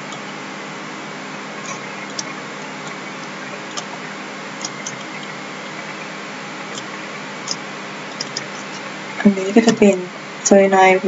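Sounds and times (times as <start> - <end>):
steady background hiss: 0.0 - 11.0
computer mouse clicks: 8.2 - 8.8.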